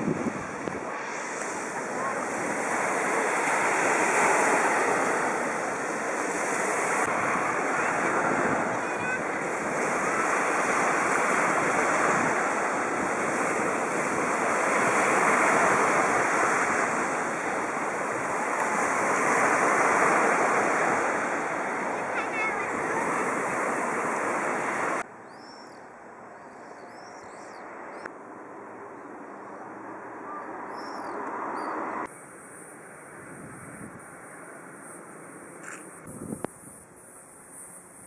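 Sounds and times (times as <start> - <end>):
sea waves breaking on beach: 0.0 - 25.0.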